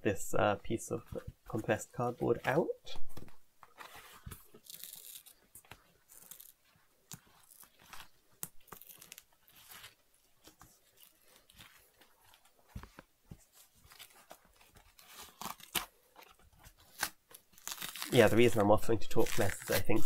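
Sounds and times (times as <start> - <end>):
small clicks and scratchy rustles: 3.2 - 20.0
cardboard tearing and crackling: 3.8 - 5.4, 6.0 - 10.0, 13.8 - 20.0.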